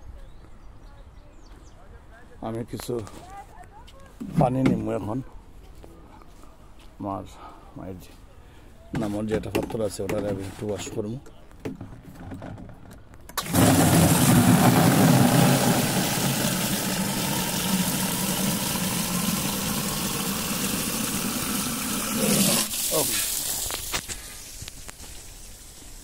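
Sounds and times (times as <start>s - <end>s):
tap water filling watering can: 13.4s - 26.0s.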